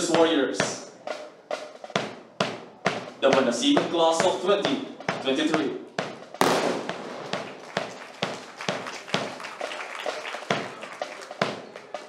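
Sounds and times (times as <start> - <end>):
rifle butts striking ground: 6.4 - 7.9
hands slapping rifles: 6.4 - 9.3.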